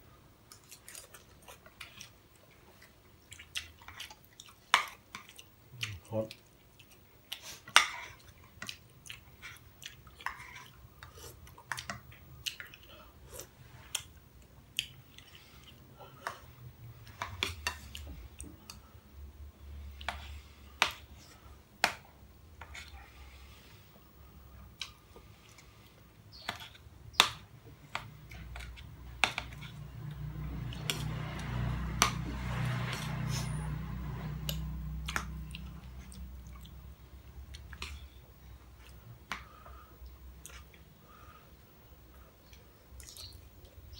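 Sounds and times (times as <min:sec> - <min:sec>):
chewing: 0:00.5 - 0:18.9, 0:27.9 - 0:36.9, 0:37.5 - 0:38.2, 0:38.8 - 0:41.2.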